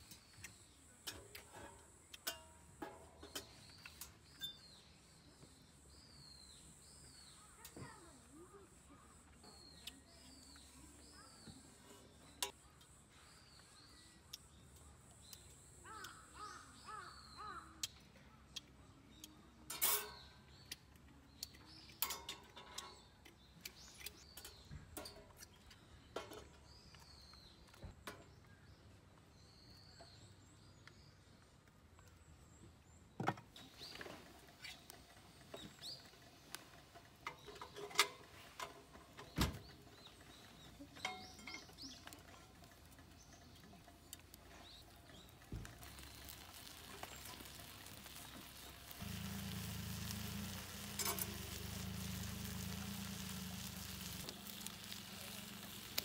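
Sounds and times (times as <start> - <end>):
small birds chirping: 0.0 - 56.0
metal cooking gear clinking: 19.7 - 20.4, 21.8 - 23.3, 35.0 - 56.0.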